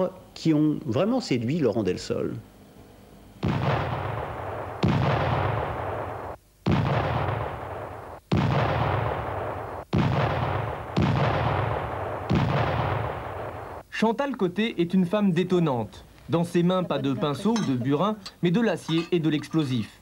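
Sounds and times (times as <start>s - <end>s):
explosions with rumbling tails: 3.4s - 13.8s.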